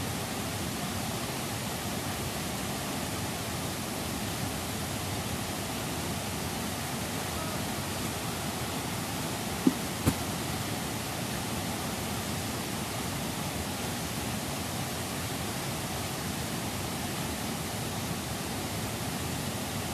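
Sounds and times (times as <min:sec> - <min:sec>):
white water rushing: 0:00.0 - 0:19.9
short thump: 0:09.6 - 0:10.3.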